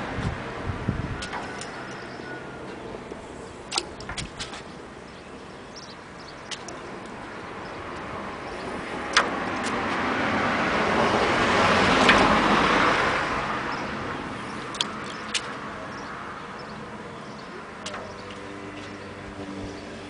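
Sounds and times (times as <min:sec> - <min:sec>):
car passing by: 0:08.1 - 0:15.6.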